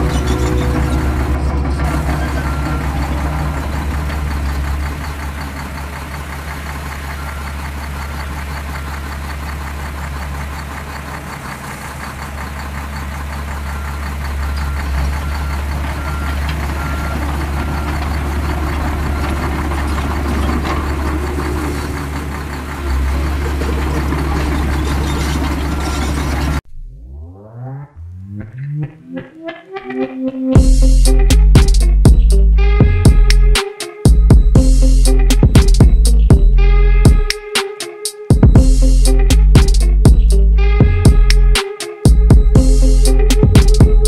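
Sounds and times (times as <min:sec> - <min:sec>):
truck engine idling: 0:00.0 - 0:26.7, 0:30.6 - 0:44.0
faint repeating beep: 0:01.8 - 0:04.5, 0:13.7 - 0:18.4.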